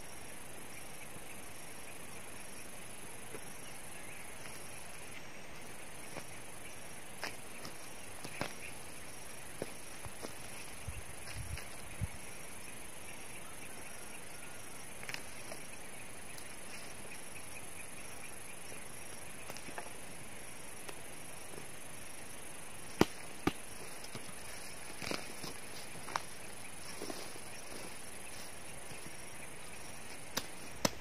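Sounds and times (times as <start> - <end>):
insects chirring: 0.0 - 31.0
hand tool striking roots and soil: 22.9 - 24.2, 30.3 - 31.0.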